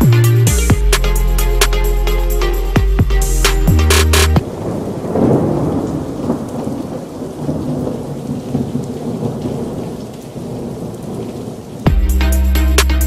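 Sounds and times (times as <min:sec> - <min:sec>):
thunder rumbling: 0:03.8 - 0:12.2
steady rain: 0:03.9 - 0:13.0.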